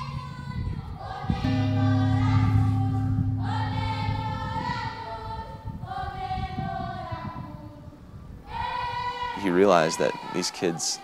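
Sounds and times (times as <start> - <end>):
choir singing held notes: 1.0 - 7.4
low sustained drone: 1.4 - 5.9.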